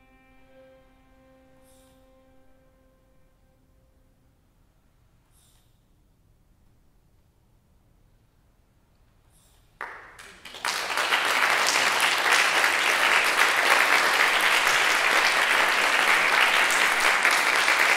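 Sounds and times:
small audience applauding: 9.8 - 17.9.

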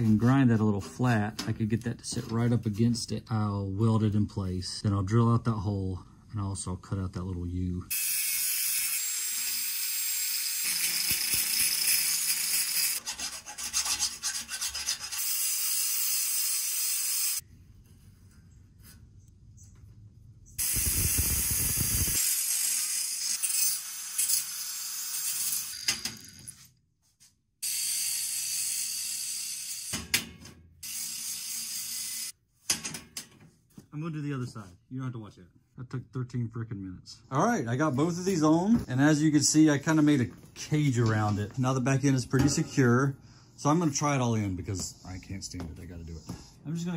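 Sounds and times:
angle grinder grinding steel: 7.9 - 17.4, 20.6 - 26.4.

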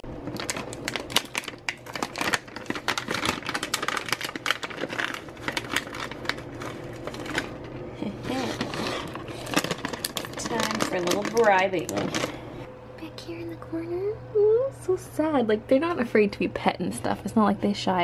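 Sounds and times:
plastic pouch crinkling: 0.2 - 12.6.

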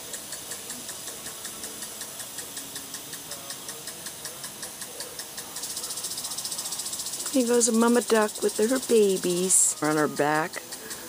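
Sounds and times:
insects chirping: 5.0 - 11.0.

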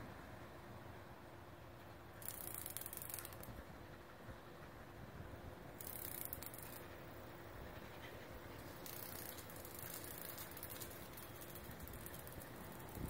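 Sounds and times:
cicada buzzing: 2.2 - 3.6, 5.8 - 7.3, 8.6 - 13.0.

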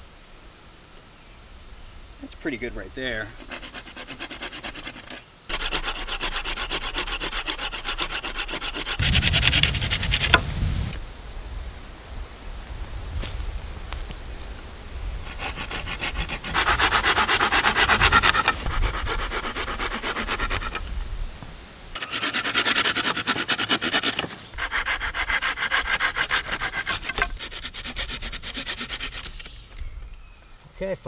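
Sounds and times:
hand saw cutting wood: 3.2 - 10.4, 15.3 - 20.9, 22.0 - 29.5.

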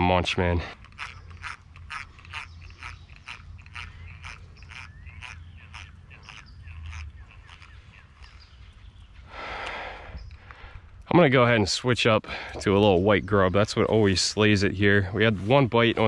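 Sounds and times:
fishing reel clicking: 0.6 - 8.4.

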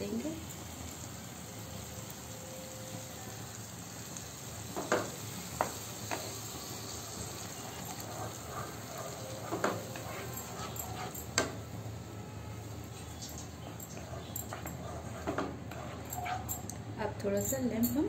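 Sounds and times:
paste sizzling in hot oil: 0.0 - 11.8.

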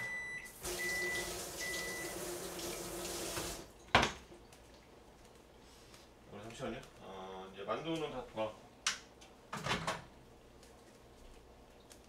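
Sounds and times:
microwave oven beeping: 0.0 - 2.5
tap water running: 0.4 - 3.7.

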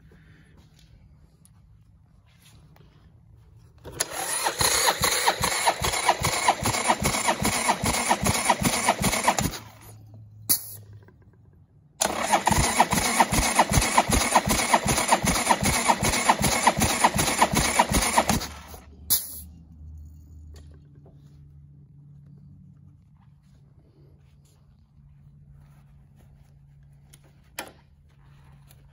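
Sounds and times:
motorcycle engine cranking: 3.8 - 11.4, 12.0 - 19.4.

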